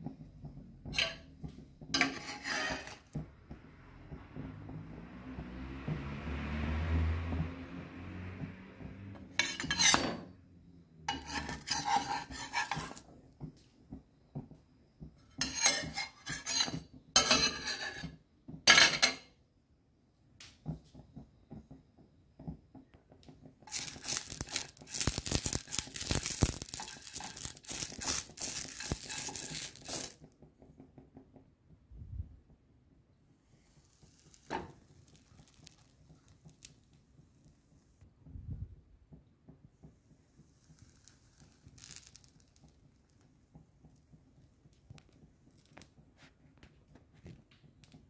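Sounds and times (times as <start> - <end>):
metal spatula scraping a pan: 0.8 - 3.3, 9.3 - 10.4, 11.1 - 13.2, 15.2 - 19.2, 23.7 - 30.2.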